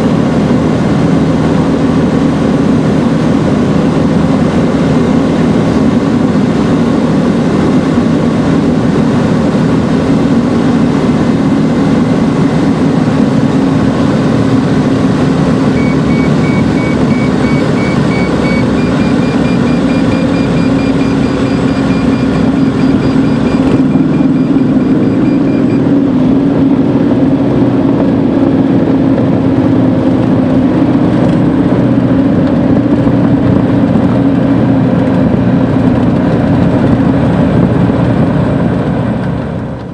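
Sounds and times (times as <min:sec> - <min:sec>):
aircraft engine and propeller droning: 0:00.0 - 0:39.9
rapid electronic beeping: 0:15.7 - 0:26.1.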